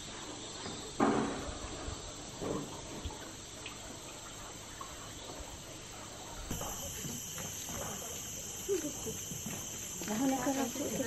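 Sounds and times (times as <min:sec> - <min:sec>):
high-pitched insect drone: 0:06.5 - 0:11.0.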